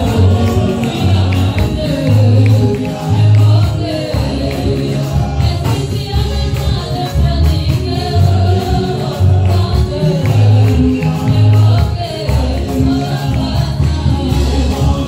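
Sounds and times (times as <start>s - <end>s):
heavy bass line: 0.0s - 15.0s
keyboard: 0.0s - 15.0s
percussive beat: 0.0s - 15.0s
voices singing: 0.0s - 15.0s.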